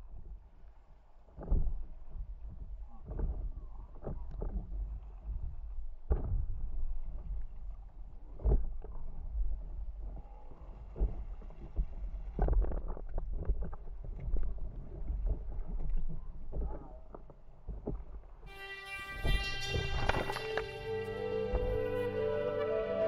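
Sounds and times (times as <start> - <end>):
water slapping against board: 1.3 - 9.6.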